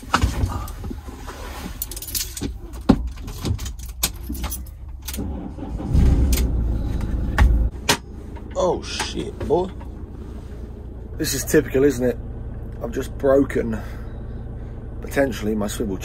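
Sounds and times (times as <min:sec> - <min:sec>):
seat clicks knocks and rattles: 0:00.0 - 0:01.0, 0:01.7 - 0:05.2
jolting rumble of seat mechanism: 0:00.0 - 0:10.6.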